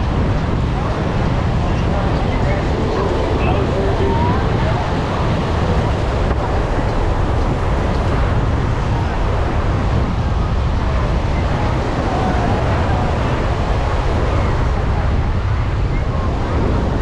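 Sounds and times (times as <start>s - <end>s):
wind rumbling on microphone: 0.0s - 17.0s
faint distant voices: 0.8s - 6.0s.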